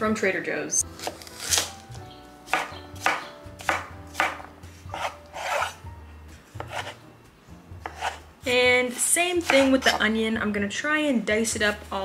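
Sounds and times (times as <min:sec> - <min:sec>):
knife chopping on wooden board: 0:01.0 - 0:01.8, 0:02.5 - 0:05.8, 0:06.6 - 0:07.0, 0:07.8 - 0:08.2, 0:09.4 - 0:10.0.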